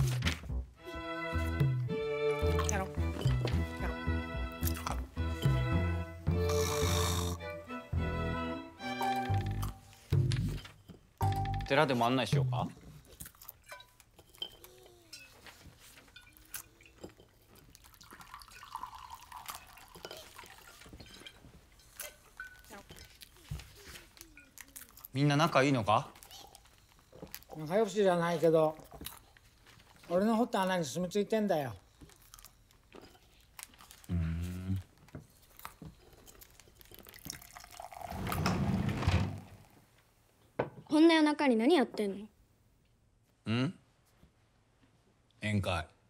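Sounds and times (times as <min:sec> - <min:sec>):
person humming: 0:06.3 - 0:07.4, 0:34.1 - 0:34.9
drinking gulps and drips: 0:16.2 - 0:23.0, 0:35.9 - 0:38.6
liquid gurgling through straw: 0:18.0 - 0:20.7, 0:37.0 - 0:39.2
dishes and bottles clicking: 0:19.6 - 0:23.7.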